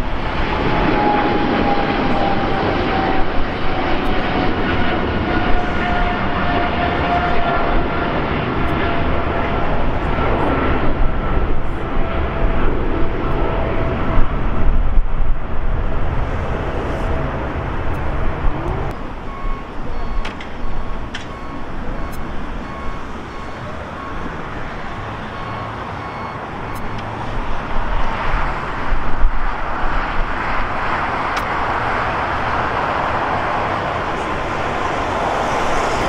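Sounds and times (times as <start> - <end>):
airport ground noise: 0.0 - 36.0
jet engine rumble: 0.0 - 36.0
reversing alarm beeping: 0.8 - 4.3, 18.9 - 27.2.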